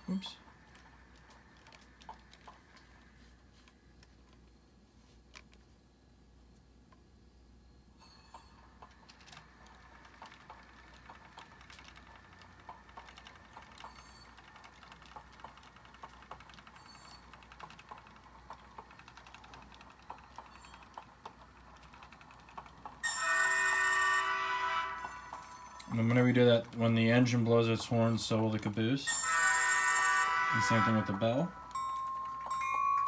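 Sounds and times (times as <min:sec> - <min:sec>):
loud train horn blast: 0:23.1 - 0:25.2, 0:29.3 - 0:31.4.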